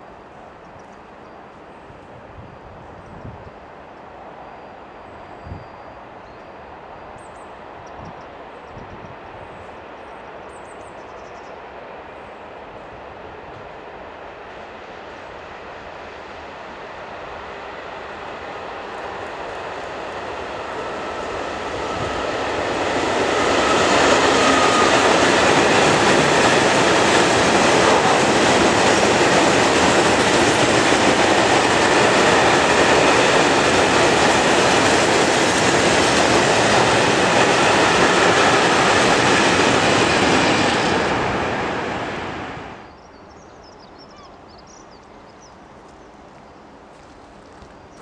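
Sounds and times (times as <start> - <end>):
freight train wheels rattling on rail: 17.1 - 42.8.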